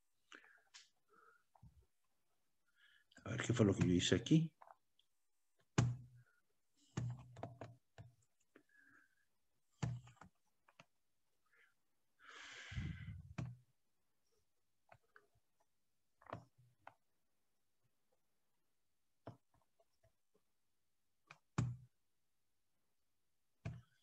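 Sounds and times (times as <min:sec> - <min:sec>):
small knocks at a desk: 0:23.6 - 0:24.0.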